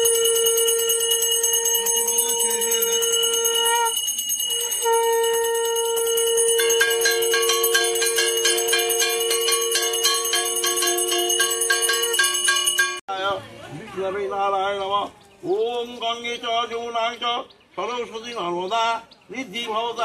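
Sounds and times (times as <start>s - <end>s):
brass hand bell ringing: 0.0s - 13.0s
lower ringing tones: 0.0s - 13.0s.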